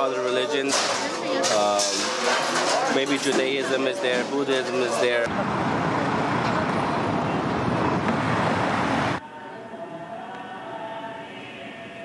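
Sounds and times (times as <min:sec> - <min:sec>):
city traffic rumble: 0:02.6 - 0:09.2.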